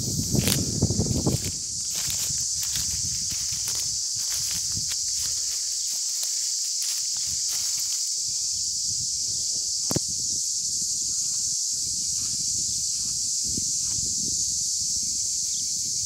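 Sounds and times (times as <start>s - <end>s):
low rumbling on microphone: 0.0s - 4.9s
cicadas buzzing: 0.0s - 16.0s.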